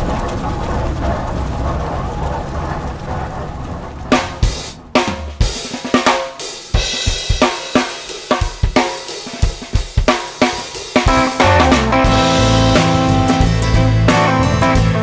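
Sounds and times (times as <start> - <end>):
drum kit beat: 4.1 - 15.0
guitar music: 10.5 - 15.0.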